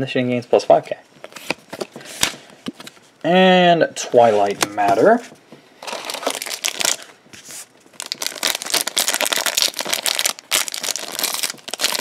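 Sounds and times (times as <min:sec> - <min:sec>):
plastic wrapper crinkling: 0:05.8 - 0:07.2, 0:07.9 - 0:12.0.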